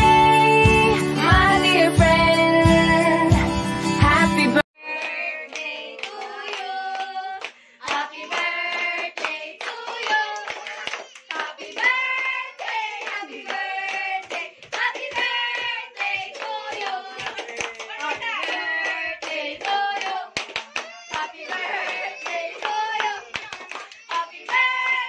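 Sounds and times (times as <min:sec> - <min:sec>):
voices singing together: 0:04.4 - 0:20.4, 0:21.1 - 0:25.0
hand clapping: 0:05.0 - 0:25.0.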